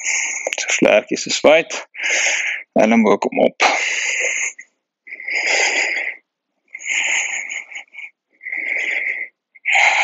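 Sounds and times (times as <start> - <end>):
man breathing deeply: 1.8 - 2.8, 3.6 - 10.0.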